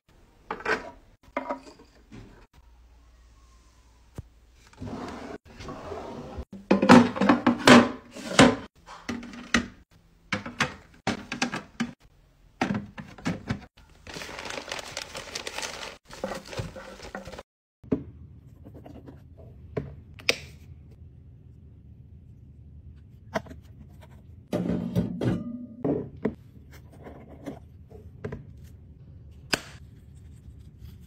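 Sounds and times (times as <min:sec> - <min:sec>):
plastic bag crinkling: 0:13.9 - 0:17.4.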